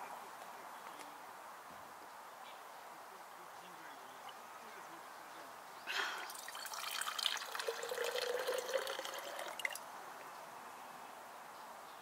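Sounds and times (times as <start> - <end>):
water running into a cup: 6.3 - 9.8.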